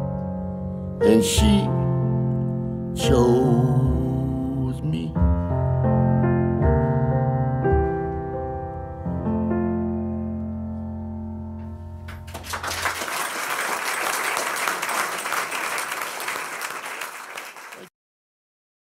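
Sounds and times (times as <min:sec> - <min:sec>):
audience applause: 0:12.1 - 0:17.9.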